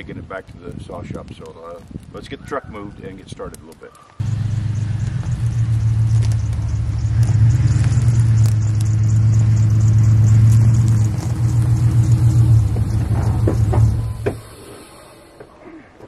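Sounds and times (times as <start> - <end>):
pickup truck engine running: 4.2 - 15.4.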